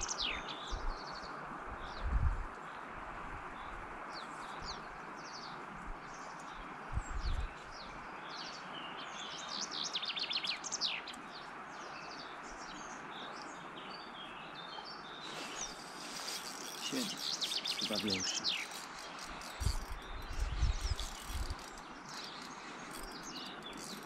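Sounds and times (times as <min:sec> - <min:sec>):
songbirds chirping and trilling: 0:00.0 - 0:24.0
river water rushing: 0:07.9 - 0:24.0.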